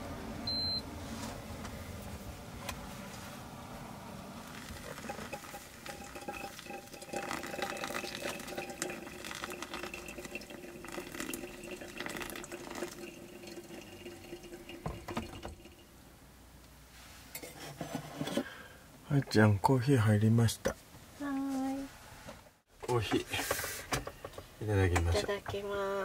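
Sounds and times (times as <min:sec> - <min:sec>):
hot water trickling onto coffee: 0:04.4 - 0:15.9.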